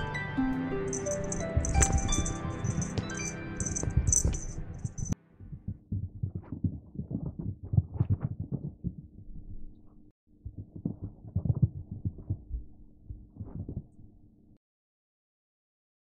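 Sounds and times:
music with tinkling chimes: 0:00.0 - 0:05.2
low steady hum: 0:00.8 - 0:14.6.

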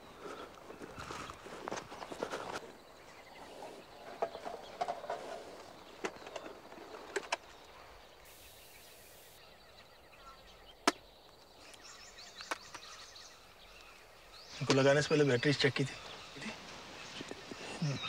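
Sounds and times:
rustling in dry grass: 0:00.0 - 0:09.4, 0:16.0 - 0:18.0.

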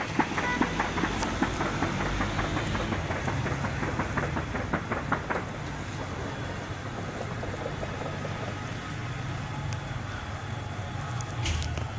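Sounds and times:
rapid gunfire: 0:00.0 - 0:09.2
steady low hum: 0:00.0 - 0:11.9.

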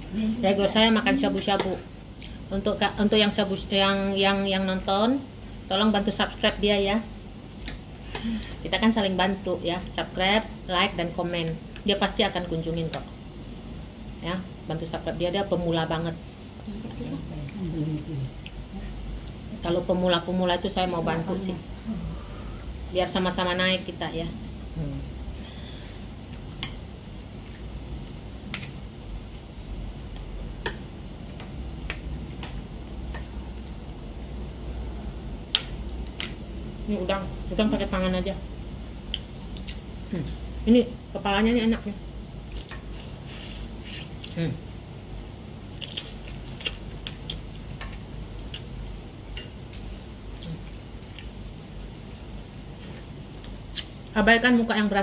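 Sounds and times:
steady low hum: 0:00.0 - 0:55.0
wet eating clicks and smacks: 0:39.1 - 0:39.9.

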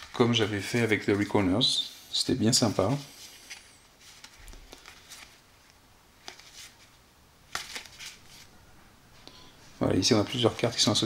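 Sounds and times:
playing cards rustling: 0:00.0 - 0:01.6, 0:02.5 - 0:08.5, 0:10.0 - 0:11.0
cards snapping: 0:07.5 - 0:08.2.

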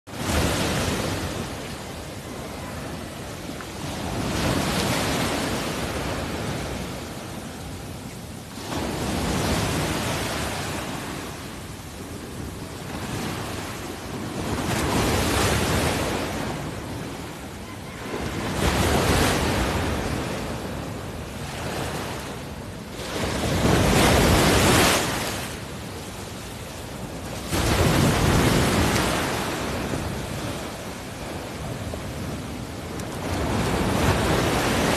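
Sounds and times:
sea water rushing and splashing: 0:00.1 - 0:34.9.

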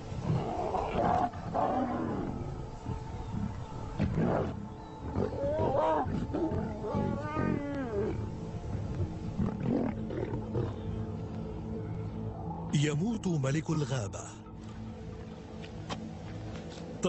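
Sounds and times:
musical drone: 0:00.0 - 0:17.0
lion snarling and growling: 0:00.2 - 0:10.9.

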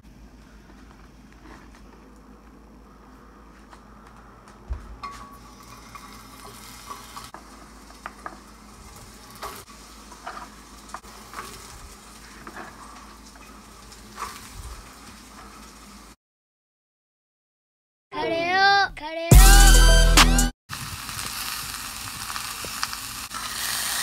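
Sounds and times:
vegetables sizzling in hot oil: 0:05.4 - 0:16.2, 0:20.7 - 0:24.0.

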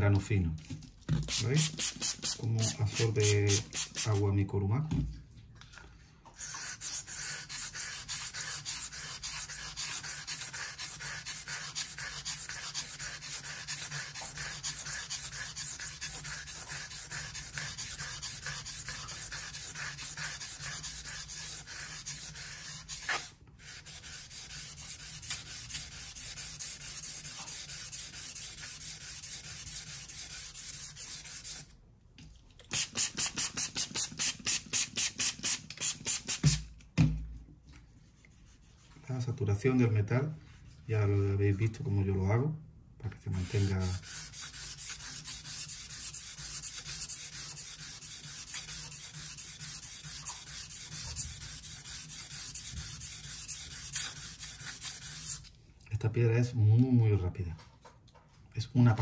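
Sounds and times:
knife scraping on whetstone: 0:06.4 - 0:31.6.

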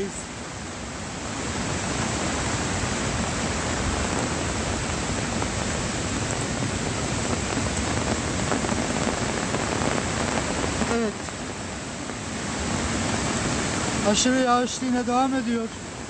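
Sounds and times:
rushing flooded stream: 0:00.0 - 0:16.0.

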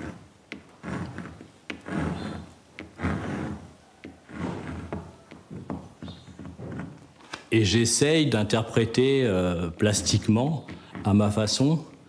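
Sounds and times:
pencil scratching on canvas: 0:00.0 - 0:07.2.

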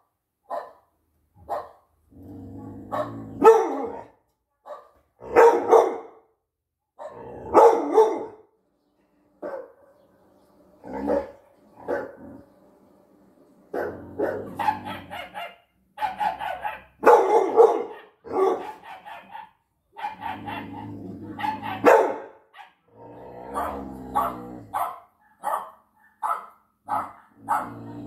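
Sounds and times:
dog barking: 0:00.5 - 0:01.9, 0:02.9 - 0:06.2, 0:07.0 - 0:08.4, 0:09.4 - 0:10.0, 0:11.0 - 0:12.2, 0:13.7 - 0:22.8, 0:23.5 - 0:27.9.

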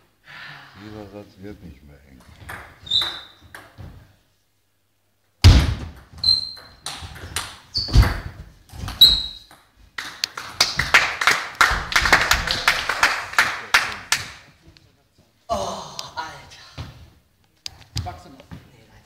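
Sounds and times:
table tennis ball pinging: 0:02.4 - 0:03.8, 0:05.5 - 0:09.7
people clapping: 0:10.0 - 0:14.6.

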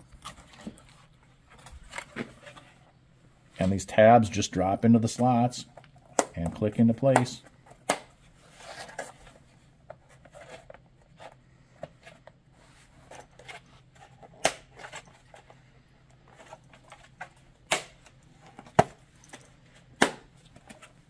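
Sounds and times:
plastic handling clicks and rustles: 0:13.0 - 0:21.0.

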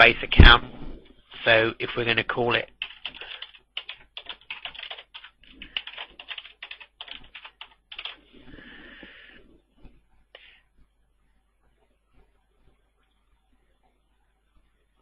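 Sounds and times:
typing on keyboard: 0:02.7 - 0:08.2.

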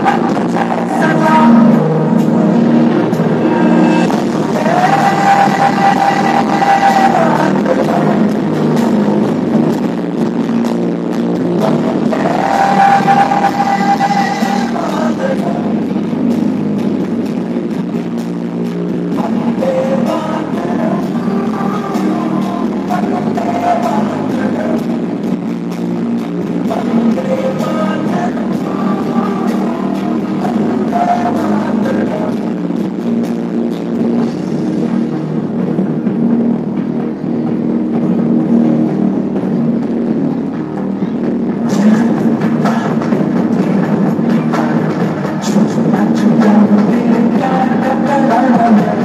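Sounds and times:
person singing: 0:00.0 - 0:02.8, 0:03.4 - 0:09.1, 0:11.6 - 0:16.0, 0:19.1 - 0:25.0, 0:26.6 - 0:32.6, 0:41.6 - 0:49.0
steady beat: 0:00.0 - 0:49.0.

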